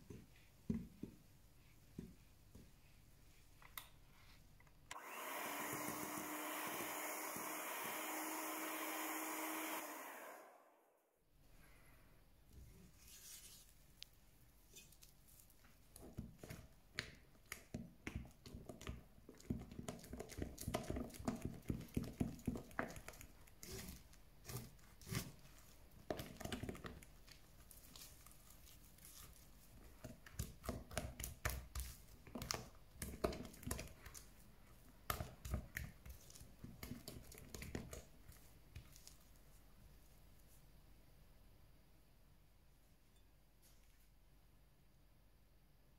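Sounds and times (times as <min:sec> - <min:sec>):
spatula folding batter in glass bowl: 0:14.7 - 0:39.6.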